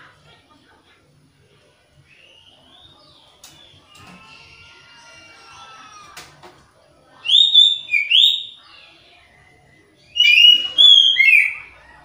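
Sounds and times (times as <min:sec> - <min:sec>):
bird singing whistled notes: 0:02.0 - 0:03.8, 0:07.2 - 0:08.9, 0:10.0 - 0:11.7.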